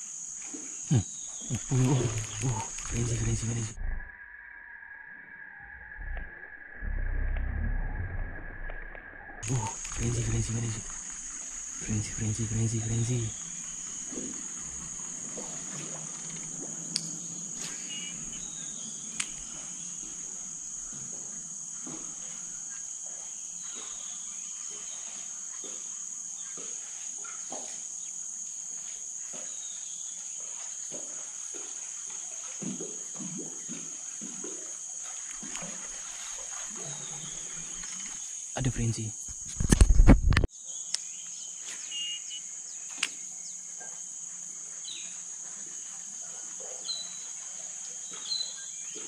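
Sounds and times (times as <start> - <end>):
high-pitched insect chorus: 0.0 - 49.0
sharp clicks: 1.5 - 3.6, 8.7 - 11.0.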